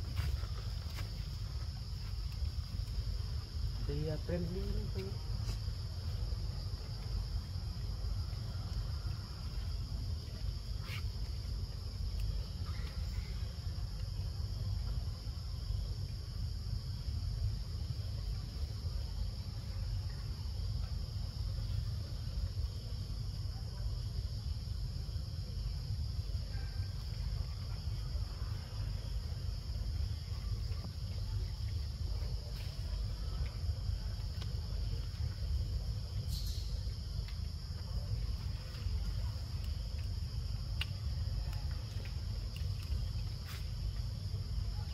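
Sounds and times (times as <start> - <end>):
insects droning: 0.0 - 44.9
faint clicks: 40.7 - 43.6.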